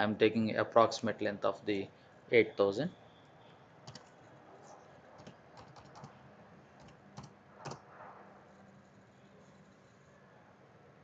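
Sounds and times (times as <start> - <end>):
keyboard keys clicking: 3.9 - 4.1, 5.2 - 6.1.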